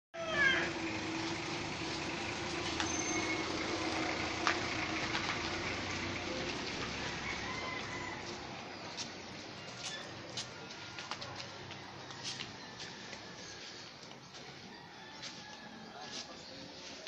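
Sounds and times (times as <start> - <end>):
low engine hum: 0.2 - 14.7.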